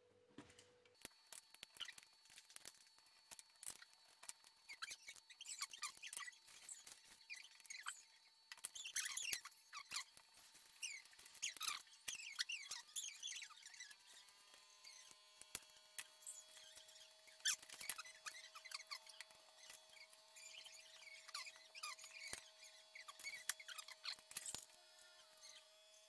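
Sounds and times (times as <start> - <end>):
faint steady whine: 0.0 - 26.0
high squeaky chirps: 1.3 - 25.6.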